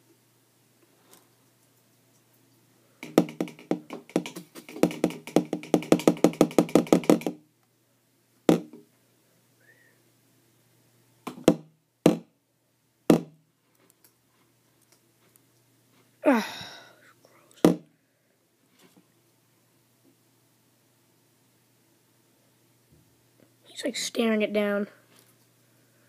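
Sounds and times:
knocks on hard surface: 0:03.0 - 0:07.4, 0:08.5 - 0:08.8, 0:11.3 - 0:12.3, 0:13.1 - 0:13.4.

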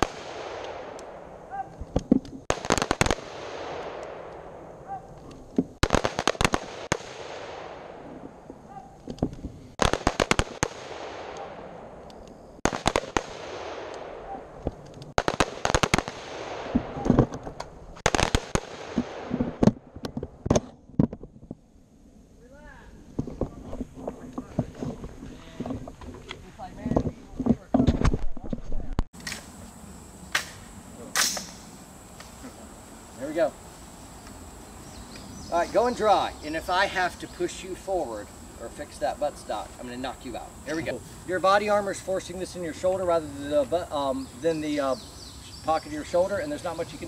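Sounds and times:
rifle gunfire with echo: 0:00.0 - 0:01.4, 0:05.8 - 0:08.4, 0:09.8 - 0:12.0, 0:12.6 - 0:14.6, 0:18.0 - 0:19.7.

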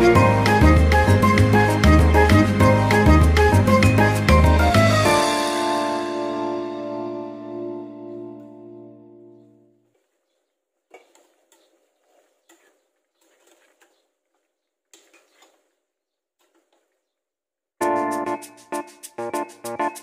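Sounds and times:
background music: 0:00.0 - 0:09.8, 0:17.8 - 0:20.0.

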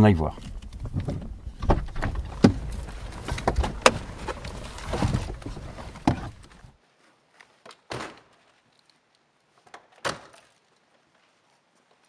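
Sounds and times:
people climbing out of car: 0:00.0 - 0:06.8
rustling: 0:00.2 - 0:07.6
car door opening: 0:00.4 - 0:06.7.

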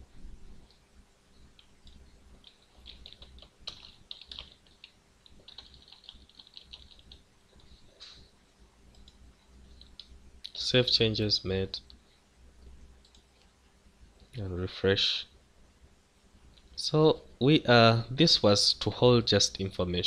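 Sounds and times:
typing on a keyboard: 0:01.6 - 0:07.8.

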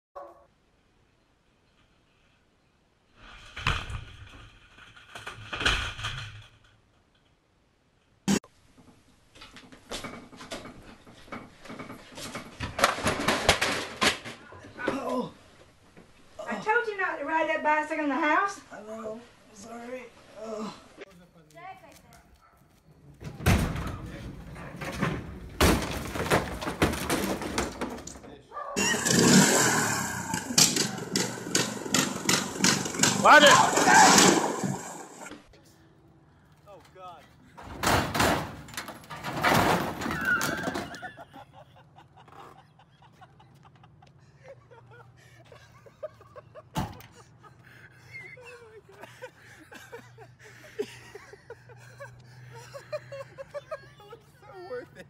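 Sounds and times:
furniture crashing to floor: 0:11.7 - 0:14.4, 0:23.2 - 0:29.6, 0:37.7 - 0:41.0
heavy thumps: 0:23.2 - 0:28.4
wardrobe crashing to the ground: 0:24.8 - 0:28.3
riding lawn mower engine: 0:28.8 - 0:35.3
sharp crack: 0:28.8 - 0:35.3.

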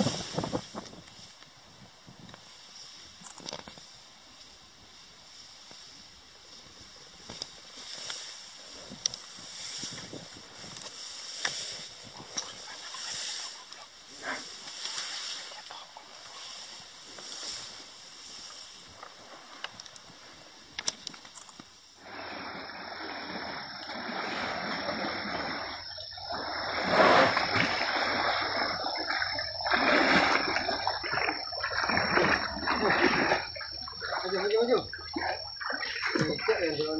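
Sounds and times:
faint outdoor background noise: 0:00.0 - 0:36.9
water splashing around elephants: 0:06.7 - 0:20.6, 0:22.0 - 0:36.9.

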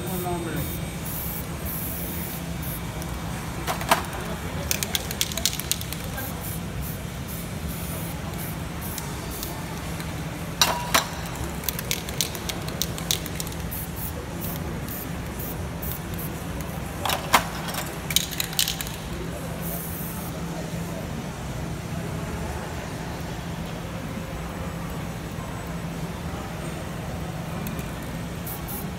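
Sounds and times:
spray-paint cans hissing: 0:00.0 - 0:20.3, 0:28.4 - 0:28.9
steady low hum: 0:00.0 - 0:28.9
metal cans clicking and clattering: 0:10.6 - 0:13.6, 0:17.0 - 0:19.0.

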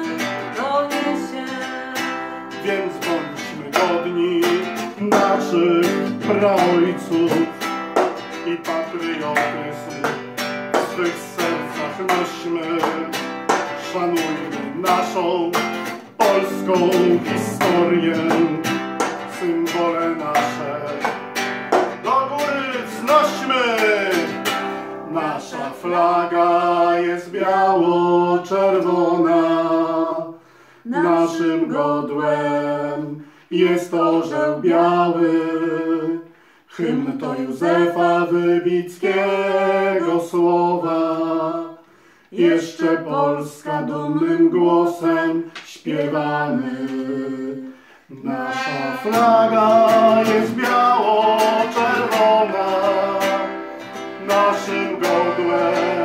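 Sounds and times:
person singing: 0:00.0 - 0:21.2, 0:22.0 - 0:56.0
strummed classical guitar: 0:00.0 - 0:30.3, 0:44.6 - 0:56.0.

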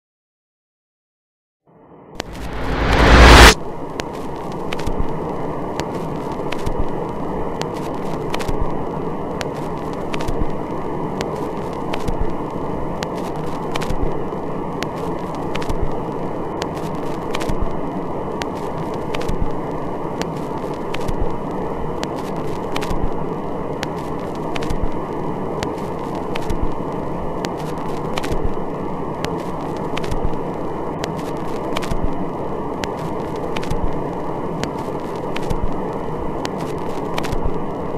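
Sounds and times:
low rushing noise: 0:02.2 - 0:03.6
crackling clicks: 0:04.0 - 0:05.0, 0:05.8 - 0:08.7, 0:09.3 - 0:14.2, 0:14.8 - 0:17.8, 0:18.4 - 0:19.6, 0:20.2 - 0:21.3, 0:22.0 - 0:23.1, 0:23.7 - 0:28.6, 0:29.2 - 0:30.4, 0:31.0 - 0:32.1, 0:32.8 - 0:37.6.

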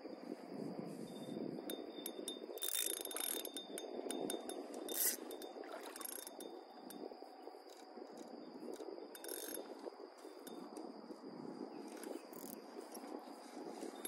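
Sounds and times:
wind noise: 0:00.0 - 0:14.0
fishing reel clicking: 0:01.7 - 0:07.1, 0:07.7 - 0:10.9, 0:11.8 - 0:13.1.

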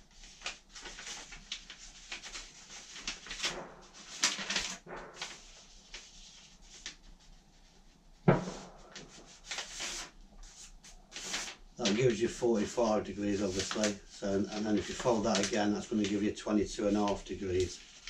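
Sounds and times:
paper folding and crinkling: 0:00.0 - 0:18.0
paper thump: 0:03.4 - 0:05.4, 0:08.3 - 0:09.8.

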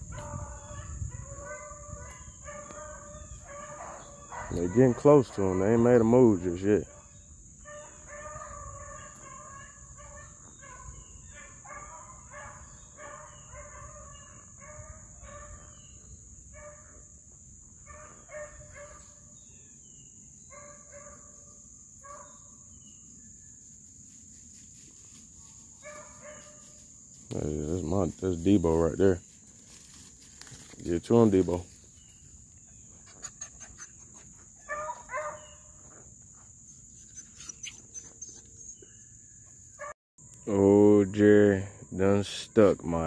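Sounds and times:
hounds baying: 0:00.0 - 0:17.1, 0:17.8 - 0:19.2, 0:25.5 - 0:26.8, 0:32.5 - 0:40.0.

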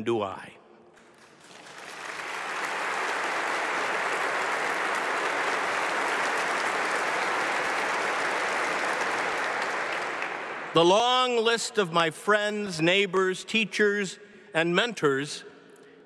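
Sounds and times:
crowd applauding: 0:01.0 - 0:10.8.

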